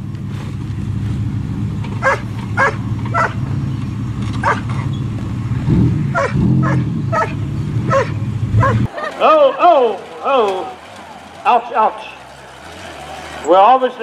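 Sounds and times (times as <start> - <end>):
truck engine running: 0.0 - 14.0
dog barking: 2.0 - 3.4, 4.4 - 4.7, 6.1 - 9.1.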